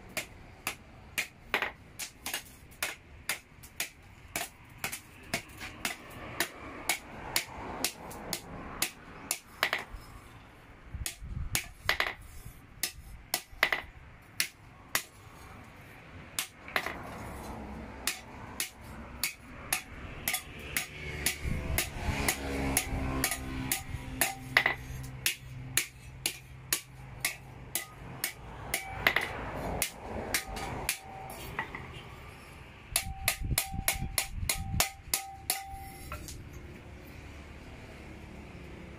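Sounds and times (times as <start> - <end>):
hammer striking steel: 16.4 - 17.2, 18.0 - 31.8, 32.9 - 36.4.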